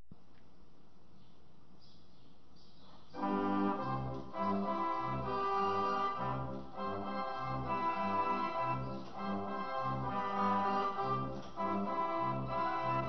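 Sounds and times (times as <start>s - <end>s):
air calliope playing a tune: 3.2s - 13.0s.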